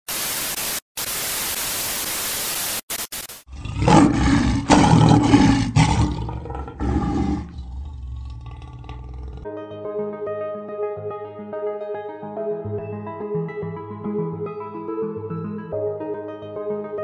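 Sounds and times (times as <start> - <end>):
stuttering glitch static hiss: 0.1 - 3.5
big cat roar: 3.5 - 9.5.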